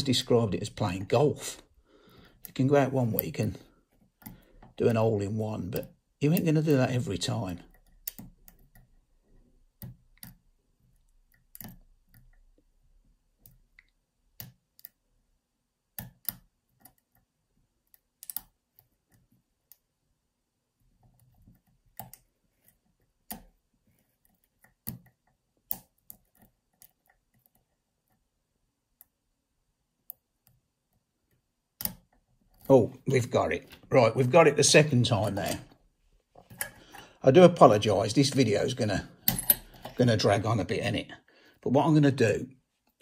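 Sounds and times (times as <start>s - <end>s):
lock pick clicking in lock: 11.3s - 12.4s, 18.2s - 18.5s, 39.2s - 39.9s.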